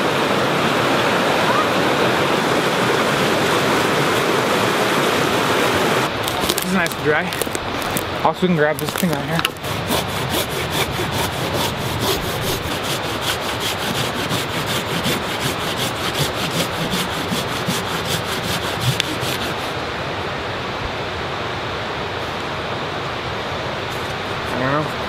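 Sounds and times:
steady hiss: 5.8 - 10.9
hand saw rasping through wood: 8.8 - 19.8.

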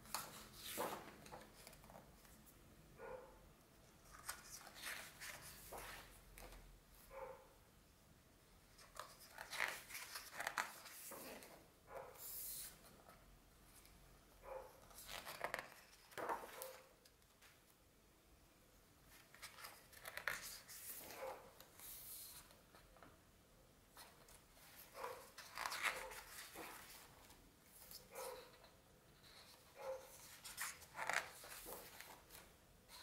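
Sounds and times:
book pages turning: 0.0 - 2.4, 4.0 - 6.6, 8.7 - 11.6, 14.8 - 17.2, 19.1 - 22.8, 24.0 - 28.6, 29.2 - 33.0.

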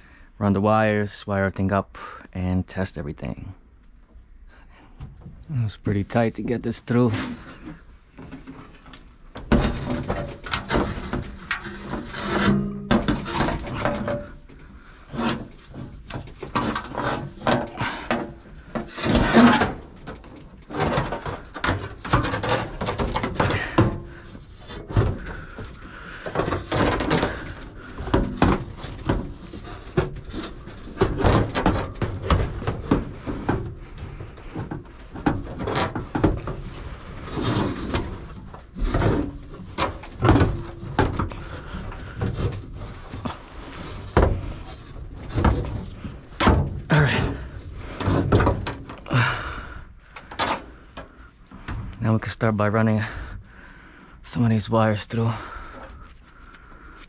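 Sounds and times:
sheet metal scraping and knocking: 6.1 - 52.0.

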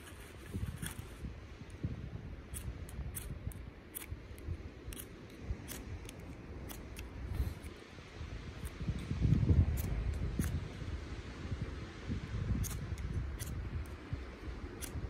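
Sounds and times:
ferro rod striker rasps: 2.4 - 7.8.

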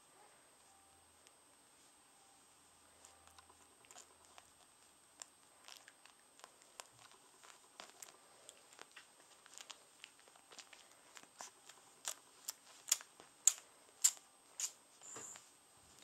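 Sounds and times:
faint high whine: 0.0 - 9.9, 13.5 - 16.0.

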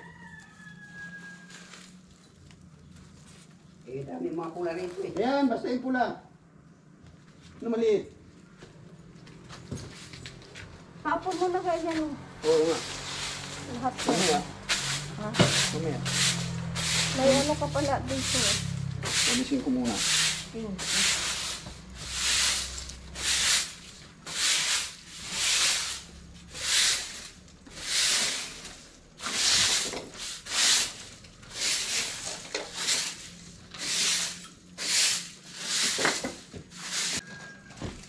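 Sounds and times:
broom sweeping concrete floor: 11.1 - 37.5.

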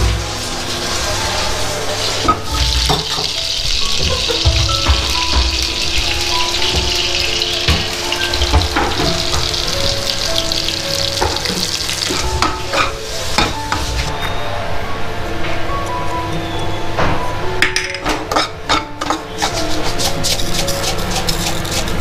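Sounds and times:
food sizzling in hot oil: 0.0 - 14.1
soft background music: 0.0 - 22.0.

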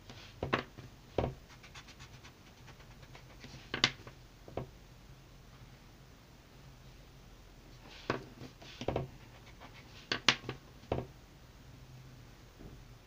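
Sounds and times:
pencil scratching on paper: 1.4 - 3.8, 7.9 - 10.1.

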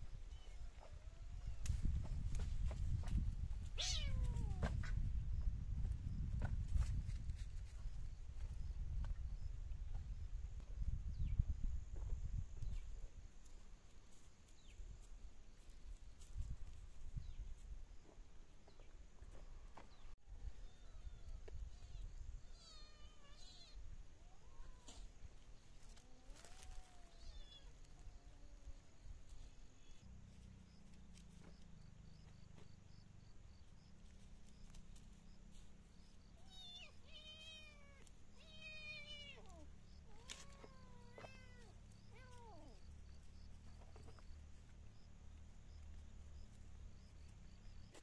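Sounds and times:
cat meowing faintly: 3.8 - 4.8, 20.6 - 25.1, 36.4 - 42.8.

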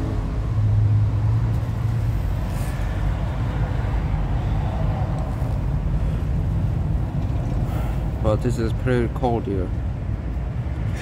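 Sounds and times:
low rumble of road traffic: 0.0 - 11.0
vehicle engine hum: 0.0 - 11.0.

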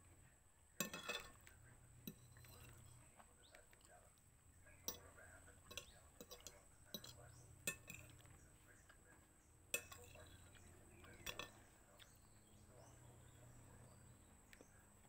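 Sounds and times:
fork clinking on ceramic plate: 0.8 - 2.9, 4.8 - 8.2, 9.7 - 11.6.

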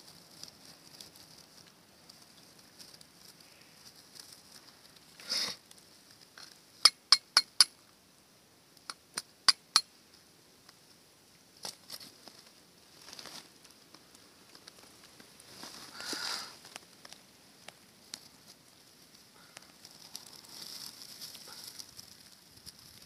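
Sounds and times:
steel striking flint: 6.8 - 7.8, 8.9 - 9.9
short rustle: 14.4 - 17.0.

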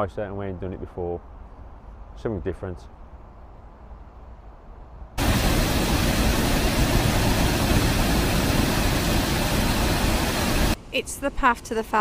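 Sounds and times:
water rushing over lock gates: 5.2 - 10.8.

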